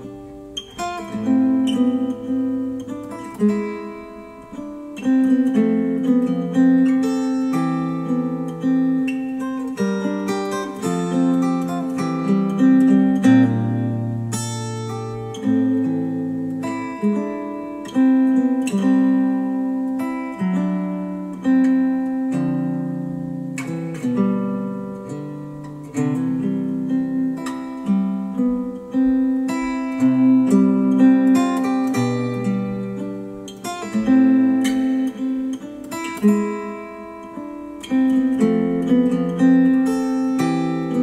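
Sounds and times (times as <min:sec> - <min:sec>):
acoustic guitar music through speakers: 0:00.0 - 0:41.0.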